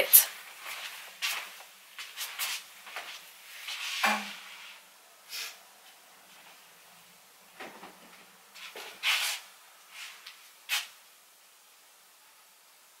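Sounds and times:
rustling of handled things: 0.1 - 4.8, 7.6 - 11.0.

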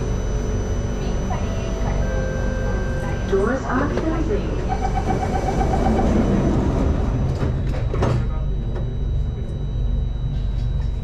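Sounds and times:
low hum of standing train: 0.0 - 11.0
train doors shutting: 2.4 - 9.1.

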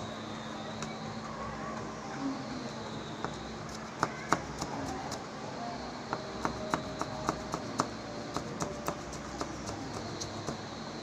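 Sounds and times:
knife chopping on cutting board: 6.4 - 10.6.

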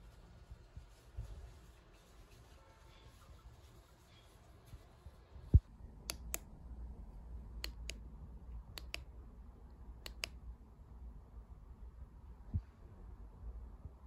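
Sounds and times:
massager buttons clicking: 6.1 - 6.4, 7.6 - 8.0, 8.7 - 9.1, 10.0 - 10.4.

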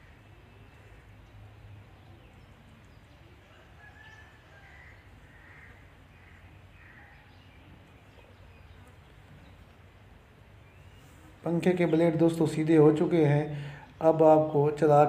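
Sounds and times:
faint bird calls: 0.0 - 9.9
background hum: 0.0 - 15.0.

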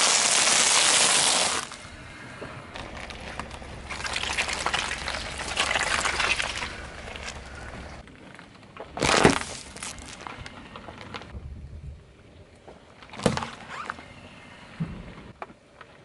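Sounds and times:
tyre crunching plastic cup: 2.8 - 7.5, 8.9 - 10.3
tyre crunching foil bag: 2.8 - 7.6, 9.0 - 11.3.

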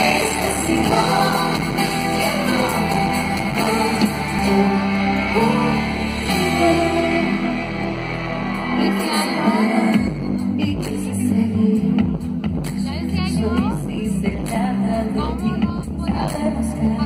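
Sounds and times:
woman singing: 0.0 - 7.8, 8.7 - 17.0
live rock band playing: 0.0 - 13.0.

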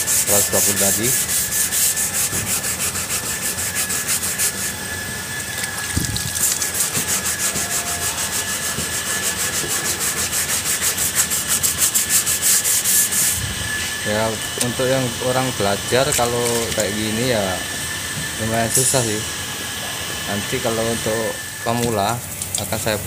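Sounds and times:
sandpaper scratching back and forth: 0.0 - 4.8, 5.7 - 13.4, 15.6 - 17.6.

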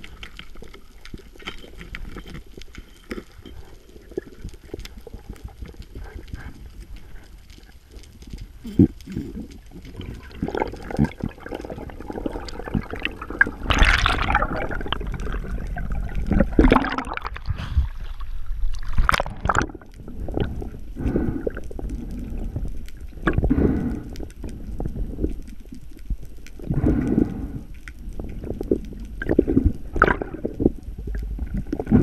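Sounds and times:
muffled underwater gurgling: 8.2 - 25.9, 26.6 - 32.0
water surges: 9.6 - 20.7.

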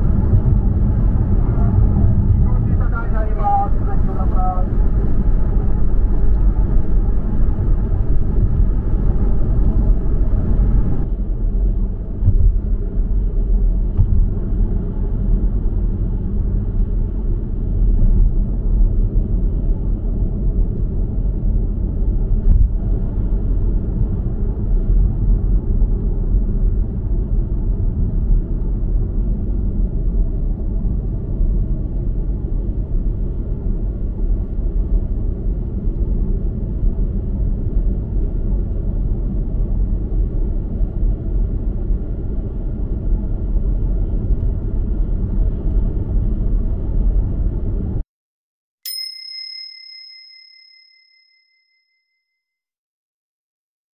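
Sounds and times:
road and tyre noise in car: 0.0 - 48.0.

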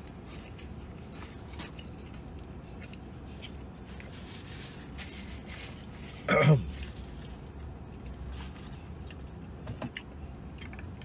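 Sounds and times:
low hum inside vehicle: 0.0 - 11.0
man chewing: 0.0 - 11.0.

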